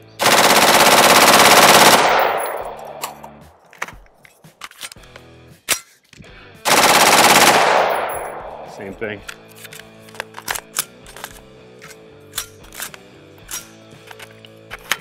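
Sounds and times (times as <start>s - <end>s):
automatic rifle bursts: 0.2s - 3.6s, 6.7s - 8.8s
rifle handling clicks: 0.3s - 6.2s, 7.3s - 15.0s.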